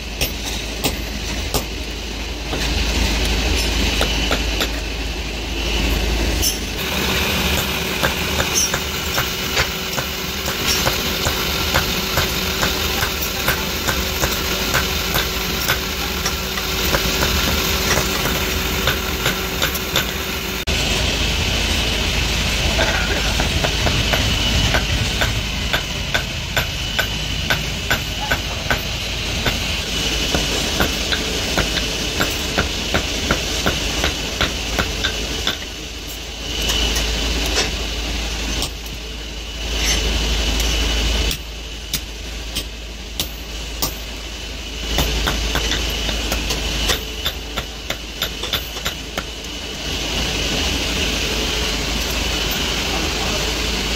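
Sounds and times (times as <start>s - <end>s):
low mechanical hum: 0.0s - 53.9s
hammer striking metal on anvil: 0.1s - 1.8s, 3.5s - 4.9s, 6.4s - 20.3s, 22.8s - 29.7s, 30.3s - 35.8s, 41.3s - 44.1s, 44.9s - 49.4s.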